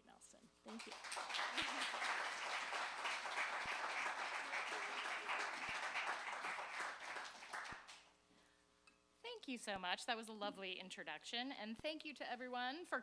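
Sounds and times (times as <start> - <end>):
audience applauding: 0.7 - 8.1.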